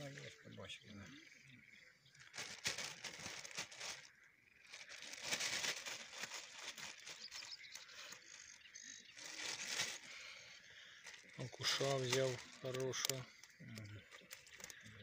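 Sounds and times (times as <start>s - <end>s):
keepnet rustling and clicking: 14.2s - 14.8s.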